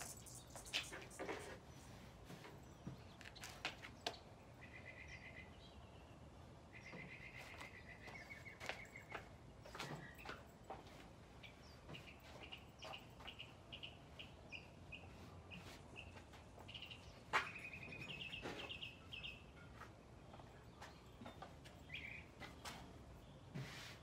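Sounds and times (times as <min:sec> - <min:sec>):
bird chirping and trilling: 0:00.0 - 0:01.8
quiet outdoor background noise: 0:00.0 - 0:24.0.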